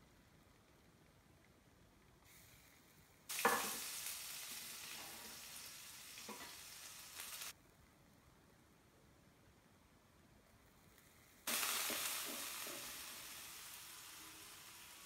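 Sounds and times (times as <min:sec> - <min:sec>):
onion sizzling in hot oil: 0:03.3 - 0:07.6, 0:11.5 - 0:15.0.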